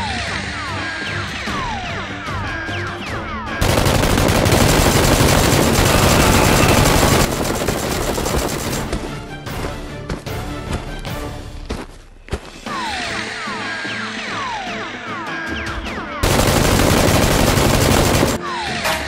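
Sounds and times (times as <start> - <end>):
background music: 0.0 - 4.5, 8.7 - 19.0
automatic gunfire: 3.6 - 9.0, 16.2 - 18.4.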